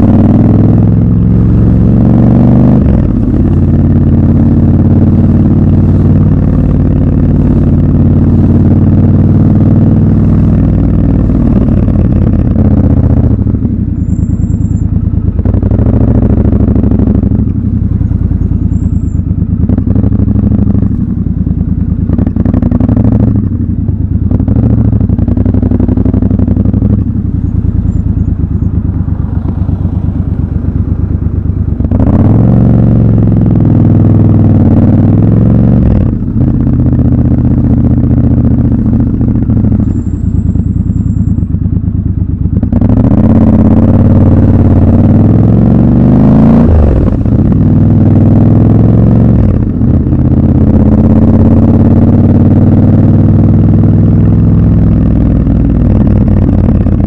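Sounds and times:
motorcycle engine at low revs: 0.0 - 57.0.

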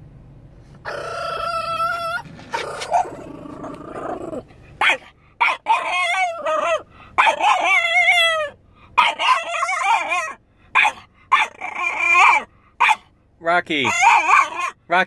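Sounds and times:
dog howling: 0.8 - 10.4, 11.3 - 12.5, 13.8 - 14.8.

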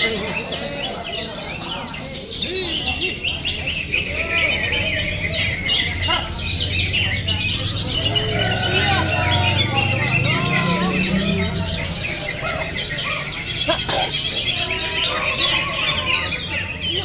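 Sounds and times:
songbirds chirping and whistling: 0.0 - 17.0.

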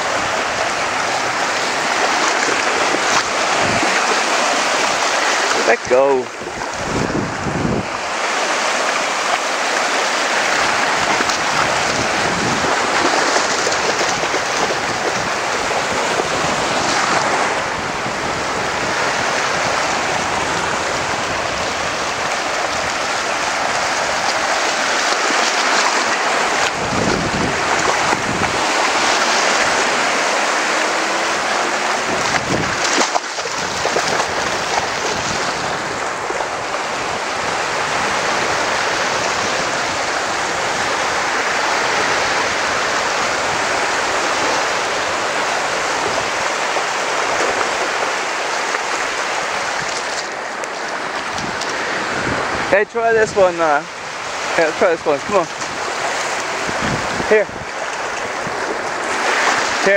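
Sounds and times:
small waves breaking on shore: 0.0 - 59.9
wind buffeting microphone: 0.0 - 59.9.

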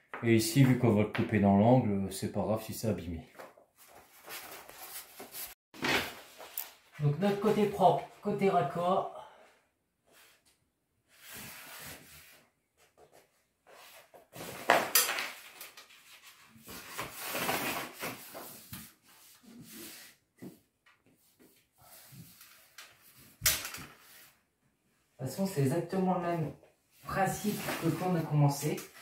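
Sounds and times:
wallpaper rustling and crackling: 3.3 - 7.8, 11.1 - 24.5, 26.9 - 29.0.

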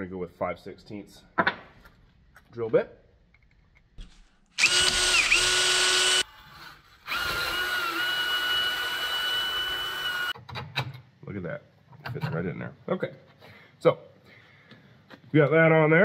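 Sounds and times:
cordless drill drilling plastic pipe: 4.6 - 10.4.

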